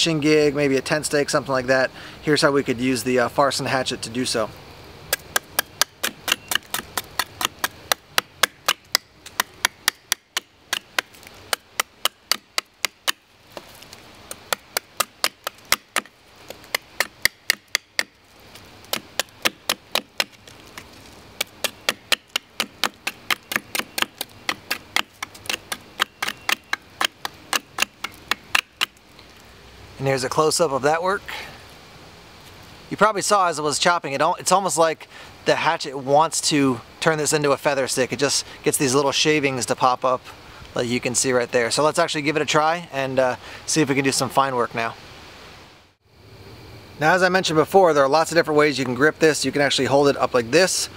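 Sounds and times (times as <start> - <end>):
hatchet chopping wood: 5.1 - 13.7, 14.3 - 18.2, 18.8 - 29.0.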